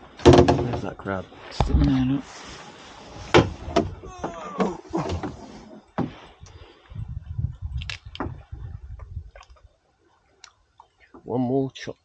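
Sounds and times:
low choppy rumble: 6.4 - 9.7.

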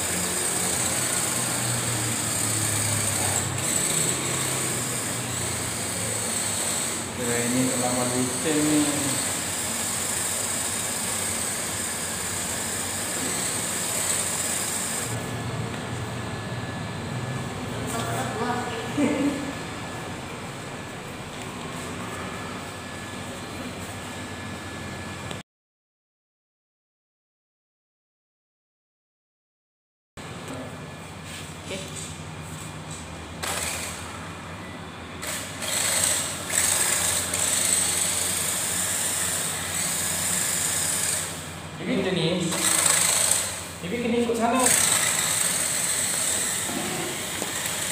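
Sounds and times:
rc car motor whining: 0.0 - 15.2, 33.4 - 34.0, 35.2 - 41.6, 42.4 - 43.8, 44.5 - 47.9.

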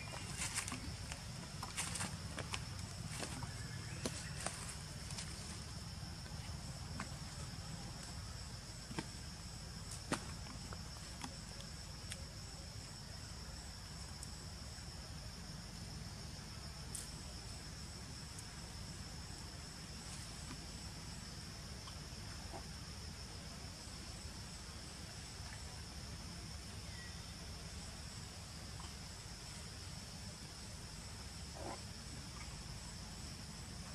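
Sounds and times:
insects chirring: 0.0 - 33.9.

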